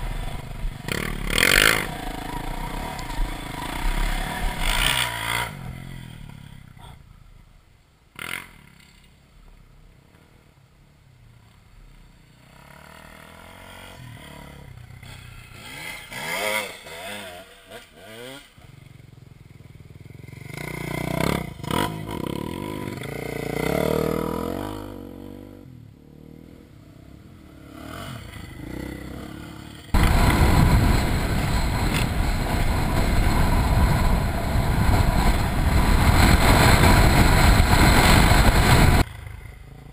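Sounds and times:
loud steady rushing noise: 0:00.0 - 0:06.1, 0:29.9 - 0:39.1
dirt bike engine revving: 0:00.0 - 0:06.7, 0:12.4 - 0:18.6, 0:20.2 - 0:25.4, 0:27.4 - 0:39.1.

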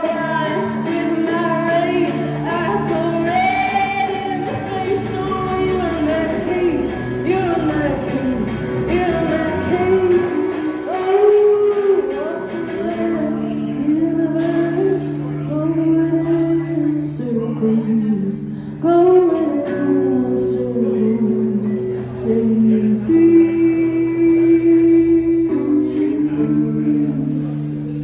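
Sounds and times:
electric guitar through amplifier: 0:00.0 - 0:28.0
woman singing into microphone: 0:00.0 - 0:28.0.

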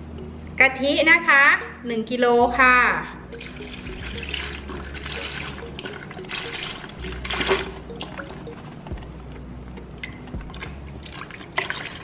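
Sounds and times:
liquid pouring into a bucket: 0:03.4 - 0:08.2, 0:10.5 - 0:12.0.

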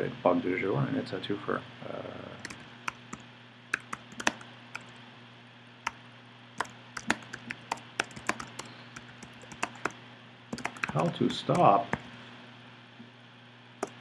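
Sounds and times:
faint steady hum: 0:00.0 - 0:14.0
keyboard keystroke clicks: 0:03.8 - 0:05.0, 0:06.6 - 0:10.0, 0:10.6 - 0:12.1.

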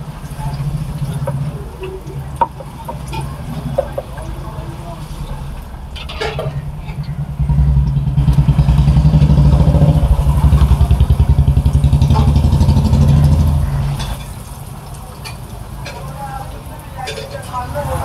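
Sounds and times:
motorcycle engine running: 0:00.0 - 0:14.3.

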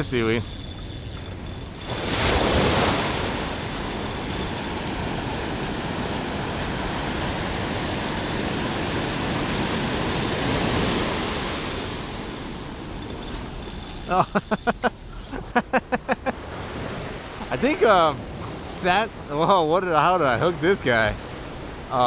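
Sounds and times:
wave breaking: 0:00.0 - 0:12.3.

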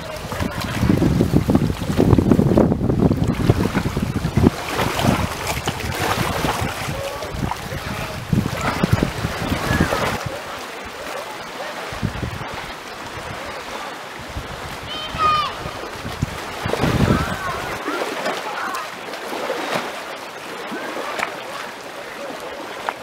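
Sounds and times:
wind buffeting microphone: 0:00.0 - 0:11.1, 0:11.8 - 0:18.1
water lapping over rocks: 0:00.0 - 0:23.0.

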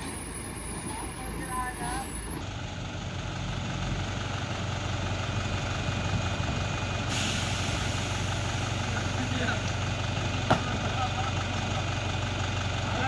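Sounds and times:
truck engine running: 0:00.0 - 0:13.0
air hissing: 0:07.1 - 0:09.0.

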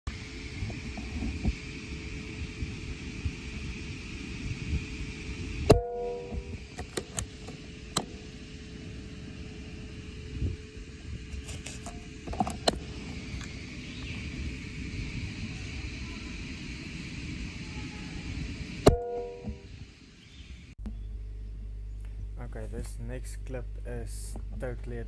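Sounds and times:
wind noise: 0:00.1 - 0:20.8
brief metallic ring: 0:18.9 - 0:19.6.

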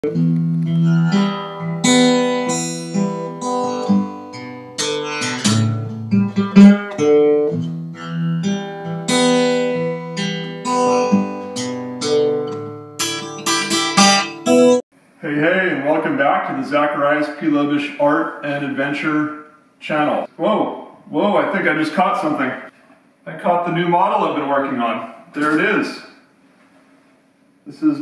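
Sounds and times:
acoustic guitar music: 0:00.0 - 0:14.8.

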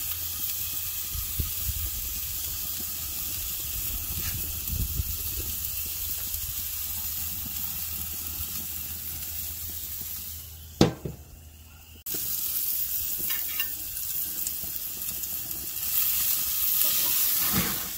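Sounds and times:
steak sizzling on grill: 0:00.0 - 0:17.9
sharp knock: 0:10.8 - 0:11.2.

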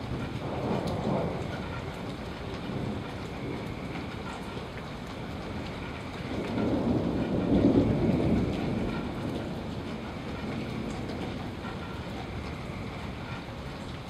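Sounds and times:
steady rain: 0:00.0 - 0:14.0
thunder rumble: 0:00.0 - 0:14.0.

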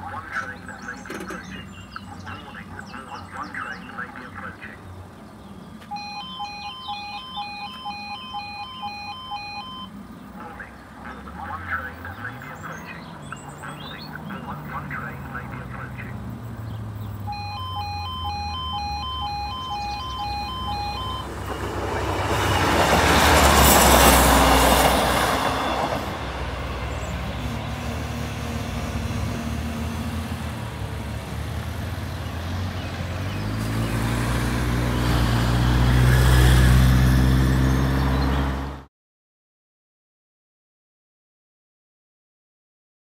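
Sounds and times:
diesel train passing: 0:00.0 - 0:38.8
level crossing two-tone alarm: 0:05.9 - 0:10.0, 0:17.2 - 0:26.2
motorcycle engine: 0:13.3 - 0:38.8.

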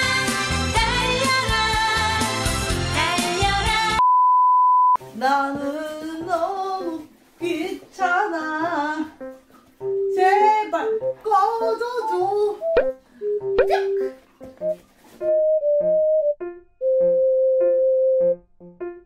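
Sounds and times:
background music: 0:00.0 - 0:04.0, 0:05.0 - 0:19.0
woman singing: 0:00.0 - 0:04.0, 0:05.1 - 0:09.2, 0:10.1 - 0:12.6.

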